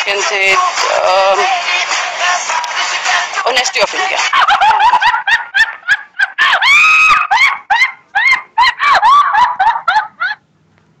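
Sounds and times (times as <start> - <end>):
shrill high-pitched laughter: 4.3 - 10.4.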